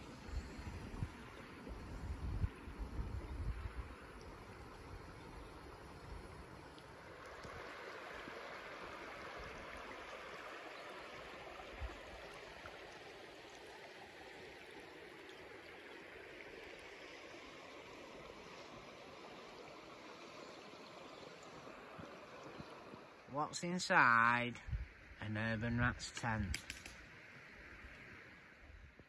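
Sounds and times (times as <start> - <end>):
river running over stones: 0.0 - 29.0.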